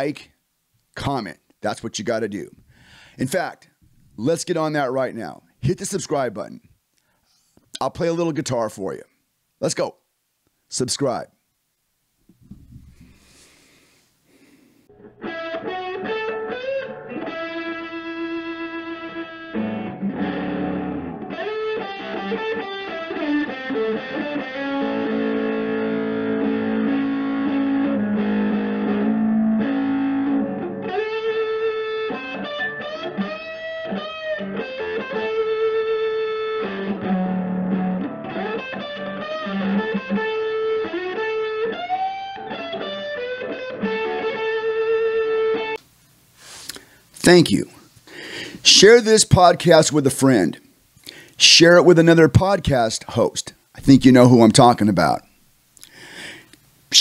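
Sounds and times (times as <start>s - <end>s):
electric guitar lead line: 14.9s - 45.8s.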